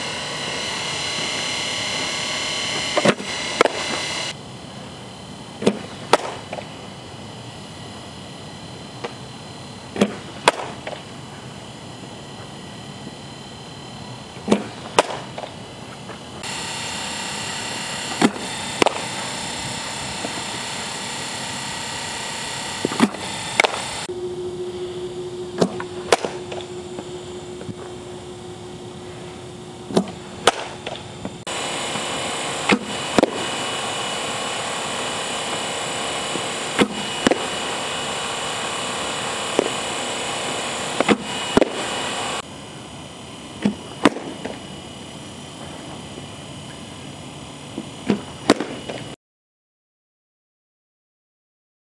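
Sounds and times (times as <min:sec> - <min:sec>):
pitching machine firing: 0:00.0 - 0:04.4, 0:05.2 - 0:42.6
steady hum: 0:00.0 - 0:49.2
bat cracking ball: 0:03.0 - 0:04.0, 0:05.6 - 0:06.7, 0:10.0 - 0:11.1, 0:14.4 - 0:15.6, 0:25.6 - 0:26.6, 0:29.9 - 0:31.1, 0:32.0 - 0:33.6.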